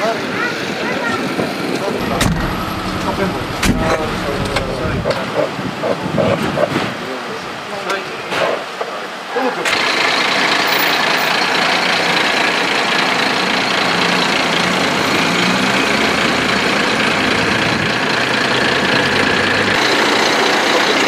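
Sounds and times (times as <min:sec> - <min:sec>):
diesel truck engine idling: 0:01.8 - 0:05.1, 0:09.7 - 0:21.0.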